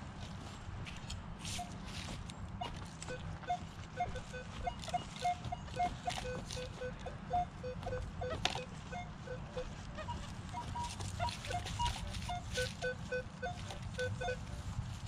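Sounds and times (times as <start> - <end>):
footsteps on dry leaves: 0.0 - 6.8, 9.6 - 15.0
metal detector beeps: 2.6 - 14.7.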